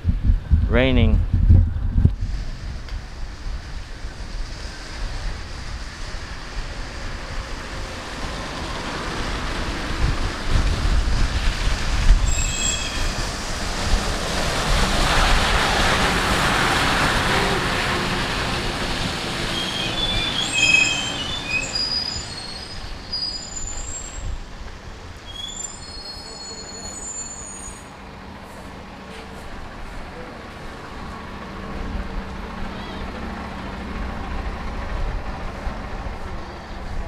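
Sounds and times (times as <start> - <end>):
bus engine passing: 1.8 - 25.6, 26.2 - 37.0
tyre hiss on wet road: 2.2 - 30.8
high-pitched brake squeals: 12.2 - 13.2, 19.5 - 24.3, 25.2 - 27.9.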